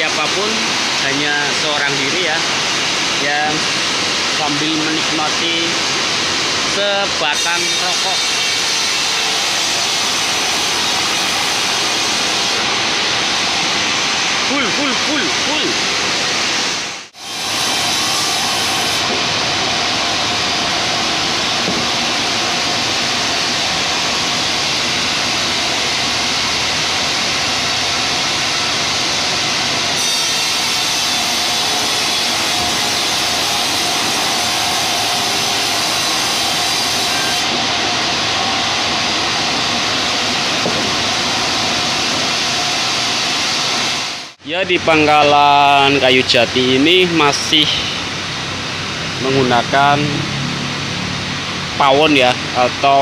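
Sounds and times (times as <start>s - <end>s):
band saw sawing timber: 6.8s - 15.8s, 17.2s - 42.9s.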